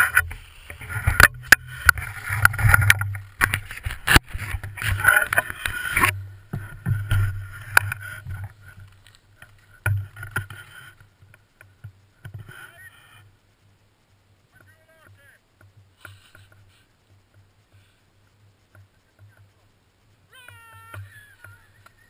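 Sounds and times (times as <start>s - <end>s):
snow hissing and scraping: 0.0s - 2.4s, 15.9s - 17.0s.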